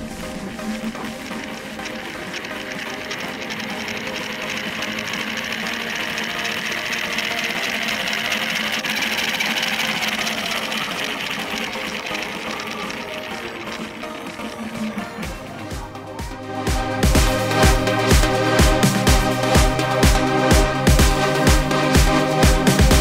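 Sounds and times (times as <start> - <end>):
small electric motor whirring: 0.2 - 15.6.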